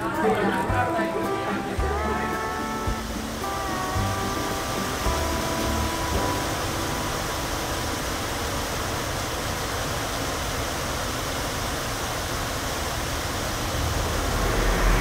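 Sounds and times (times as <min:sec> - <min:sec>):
waterfall splashing over rocks: 0:00.0 - 0:15.0
low rumble: 0:13.2 - 0:15.0.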